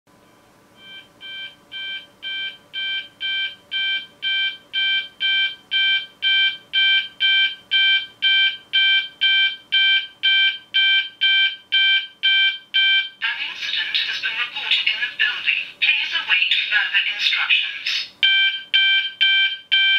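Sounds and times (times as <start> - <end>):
sounder beacon fast beeps: 18.2 - 19.9.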